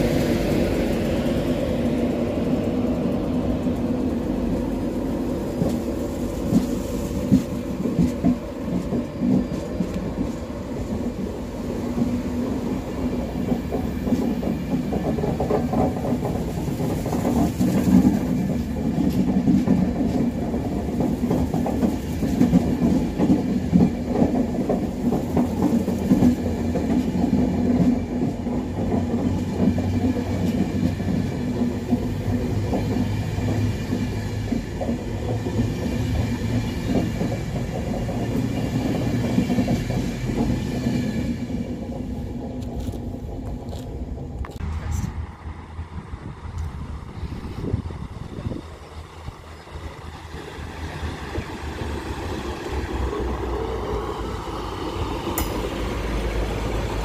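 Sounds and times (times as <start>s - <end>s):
wheels clicking over track: 0.0s - 45.1s
train wheels rumbling on rails: 0.0s - 57.0s.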